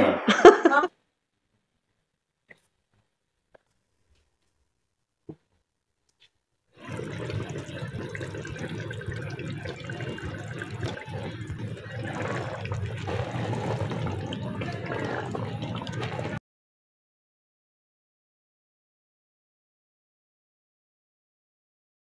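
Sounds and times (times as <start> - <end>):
curry bubbling and sizzling in pot: 6.8 - 16.4.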